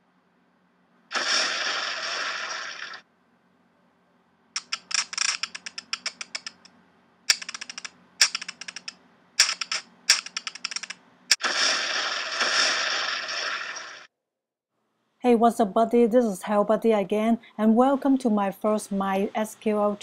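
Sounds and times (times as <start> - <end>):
rapid keyboard clicks: 4.6 - 6.7, 7.3 - 11.0.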